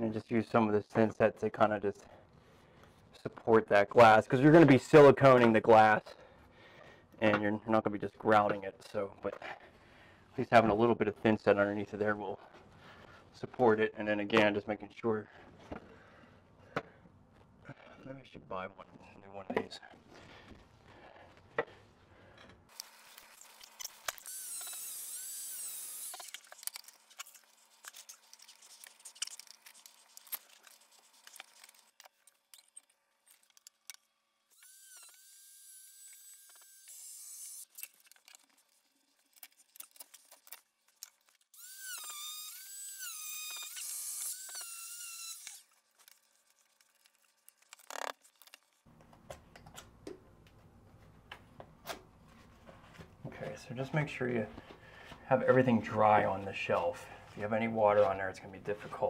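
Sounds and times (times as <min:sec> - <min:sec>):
power saw cutting tile: 0:22.7 - 0:27.3, 0:34.5 - 0:37.8, 0:41.6 - 0:45.6.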